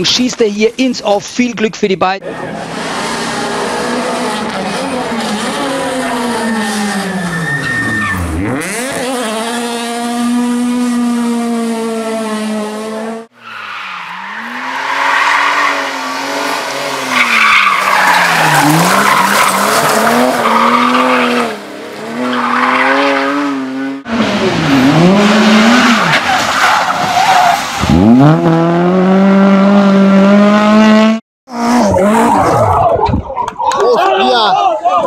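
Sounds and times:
rally car engine revving: 0:02.2 - 0:13.3, 0:14.0 - 0:33.0.

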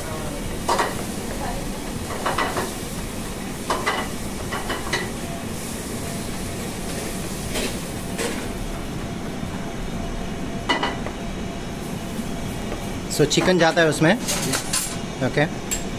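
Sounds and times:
kitchen background noise: 0:00.0 - 0:15.9
utensils and dishes clattering: 0:00.5 - 0:02.8, 0:03.7 - 0:05.2, 0:13.2 - 0:15.0, 0:15.6 - 0:15.9.

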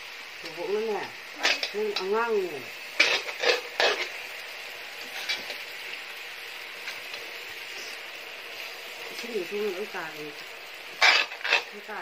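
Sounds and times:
metal ladle scraping a wok: 0:02.9 - 0:04.3, 0:05.0 - 0:05.7, 0:10.9 - 0:11.9.

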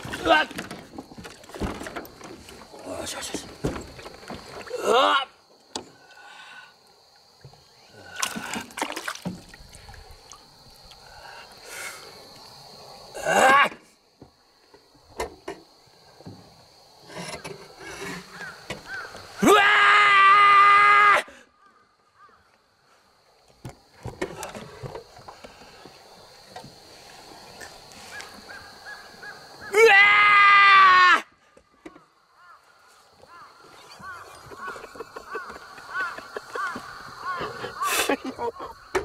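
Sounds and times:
handling knocks and rustles: 0:00.0 - 0:04.7
quiet water sounds: 0:00.0 - 0:13.2, 0:21.5 - 0:29.7, 0:31.3 - 0:39.0
fish splashing in water: 0:08.1 - 0:10.5.

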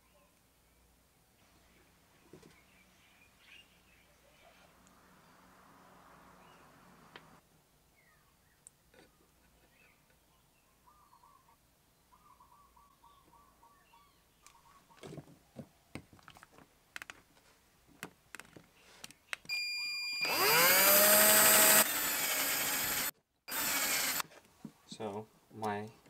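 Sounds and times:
cordless drill whining: 0:19.5 - 0:24.2.

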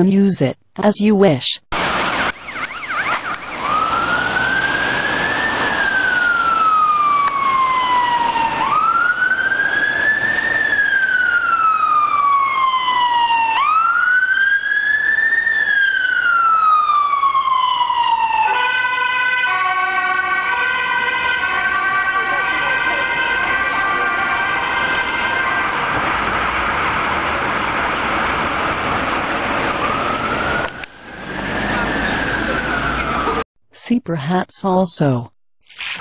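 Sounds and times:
police siren wailing: 0:01.8 - 0:33.4
second higher-pitched siren: 0:02.0 - 0:14.6.

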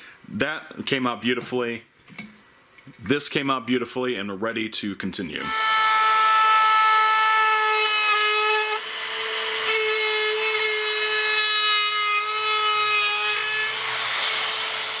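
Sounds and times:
router cutting wood hiss: 0:07.9 - 0:11.4, 0:12.2 - 0:15.0
trim router motor whine: 0:07.9 - 0:11.6, 0:12.2 - 0:15.0.

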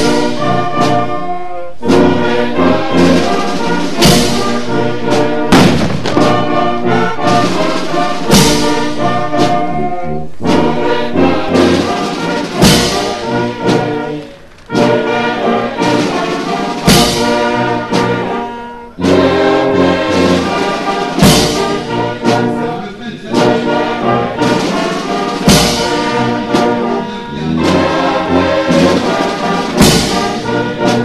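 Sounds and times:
brass-led orchestral music: 0:00.0 - 0:31.0
crashing percussion hits: 0:03.0 - 0:13.5.

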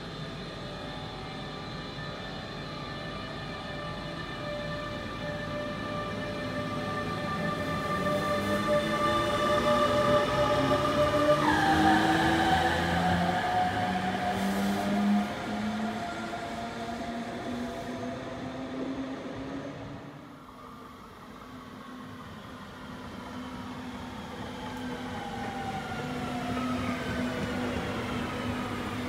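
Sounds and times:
electric locomotive whine: 0:00.0 - 0:29.0
train wheel and rail rumble: 0:00.0 - 0:29.0.

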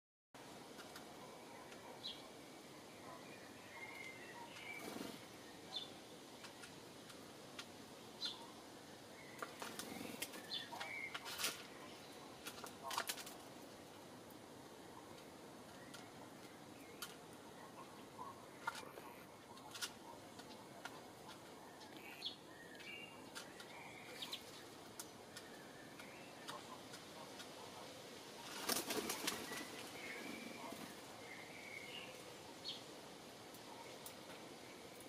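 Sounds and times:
dove wings flapping: 0:04.8 - 0:05.3, 0:12.4 - 0:13.4, 0:28.4 - 0:30.9.

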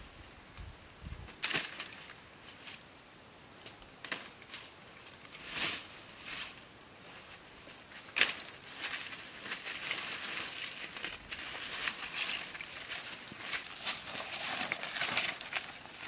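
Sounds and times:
dry leaves rustling: 0:04.2 - 0:16.0.

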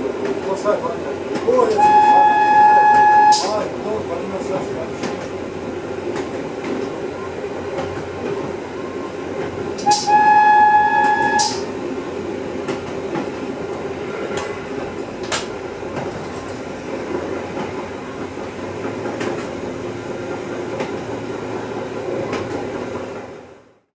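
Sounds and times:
diesel railcar running: 0:00.0 - 0:23.9
train horn blast: 0:01.7 - 0:03.6, 0:09.8 - 0:11.7.

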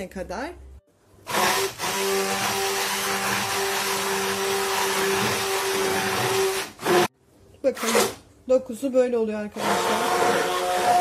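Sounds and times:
immersion blender whirring: 0:01.3 - 0:07.1, 0:09.6 - 0:11.0.

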